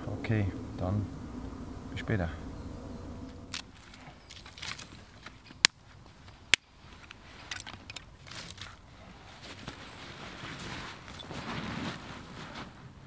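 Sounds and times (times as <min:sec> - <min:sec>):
sticks cracking: 0:03.5 - 0:08.9
sticks rustling and crackling: 0:03.5 - 0:13.0.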